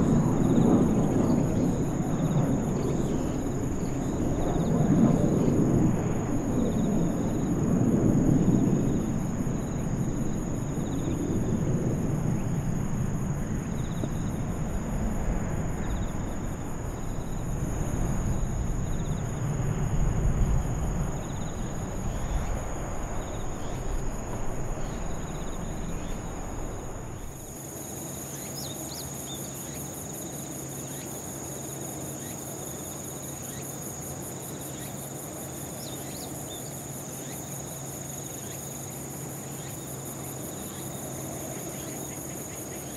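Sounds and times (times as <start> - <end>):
distant jet rumble: 0.0 - 27.6
insects chirring: 0.0 - 42.9.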